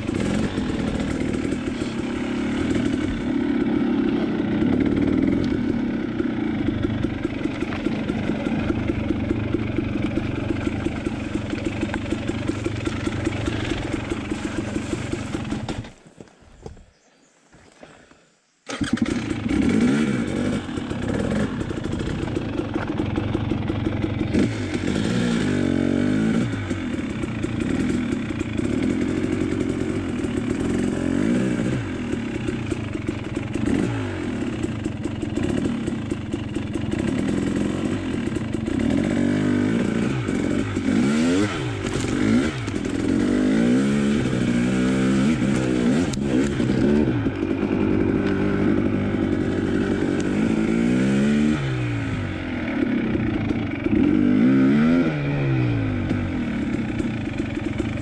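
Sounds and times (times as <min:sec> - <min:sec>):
dirt bike engine revving: 0:00.0 - 0:16.0, 0:18.7 - 0:58.0.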